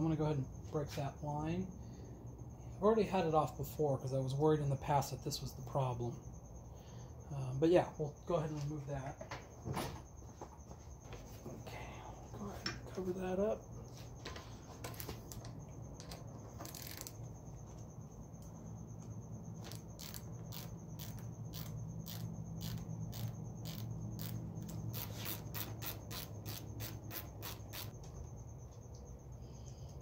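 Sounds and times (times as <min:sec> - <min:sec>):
steady low hum: 0:00.0 - 0:30.0
ratchet wrench clicking: 0:16.0 - 0:17.2, 0:19.6 - 0:27.9.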